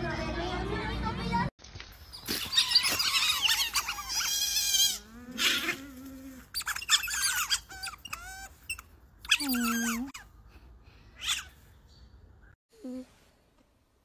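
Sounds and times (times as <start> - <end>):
otters squeaking and chirping: 2.0 - 10.3, 11.2 - 11.7.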